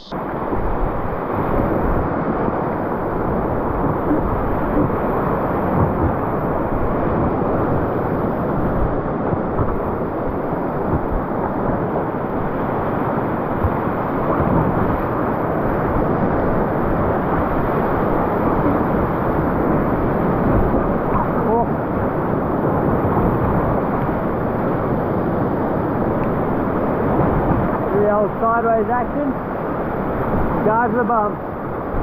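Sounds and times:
whitewater rapids roaring: 0:00.0 - 0:32.0.

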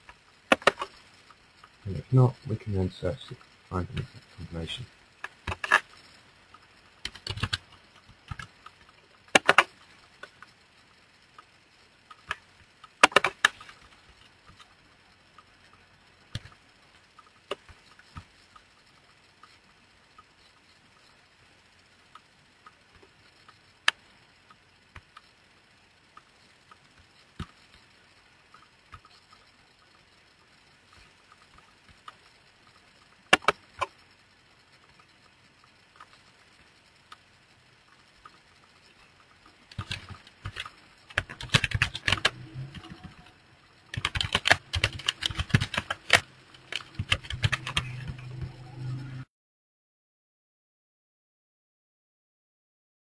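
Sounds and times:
mouse clicks: 0:33.3 - 0:33.9.

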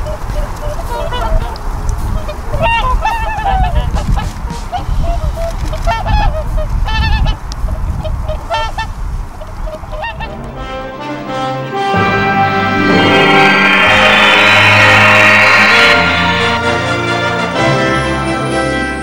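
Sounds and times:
swans honking: 0:09.4 - 0:17.2
music: 0:10.0 - 0:19.0
low rumble: 0:10.1 - 0:17.4.

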